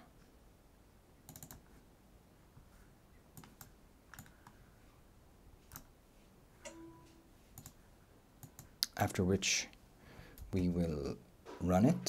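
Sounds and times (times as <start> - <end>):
computer clicks: 1.3 - 1.7, 3.4 - 4.6, 5.7 - 5.9, 7.6 - 7.8, 8.4 - 9.0
short tone: 6.7 - 7.4.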